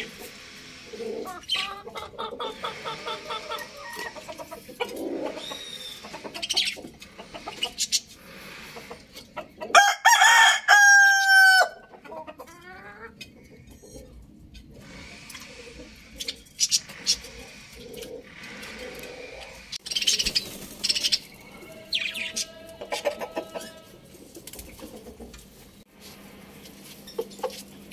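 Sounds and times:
chickens clucking and chirping: 0.0 - 27.9
rooster crowing: 9.7 - 11.8, 21.5 - 23.9.

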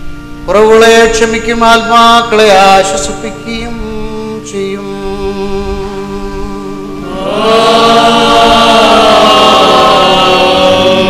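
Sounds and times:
choir and congregation chanting: 2.4 - 11.0.

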